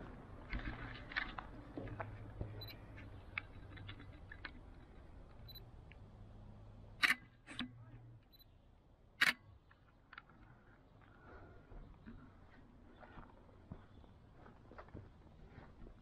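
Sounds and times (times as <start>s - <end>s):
faint low hum: 0.0s - 16.0s
sharp clicks: 9.2s - 10.3s.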